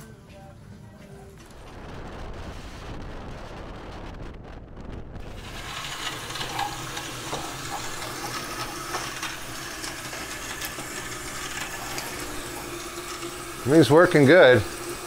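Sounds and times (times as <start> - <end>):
water running from tap: 5.3 - 15.0.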